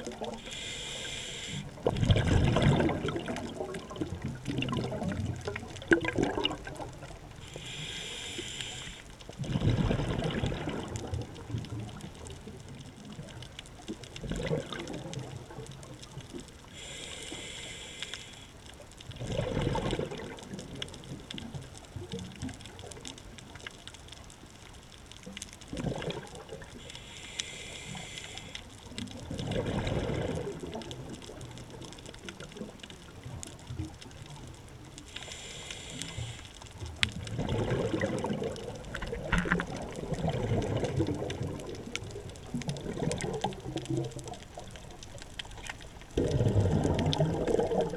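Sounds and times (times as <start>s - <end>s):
diver breathing through regulator: 0.3s - 1.8s, 7.4s - 9.1s, 16.7s - 18.5s, 26.8s - 28.7s, 35.1s - 36.6s
exhaled bubbles gushing: 1.6s - 7.5s, 9.4s - 16.2s, 19.1s - 23.2s, 25.6s - 26.9s, 28.8s - 35.0s, 36.9s - 47.9s.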